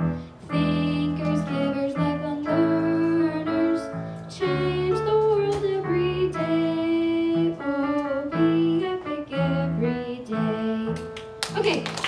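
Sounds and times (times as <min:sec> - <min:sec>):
girl singing into a microphone: 0:00.0 - 0:11.7
piano accompaniment: 0:00.0 - 0:12.0.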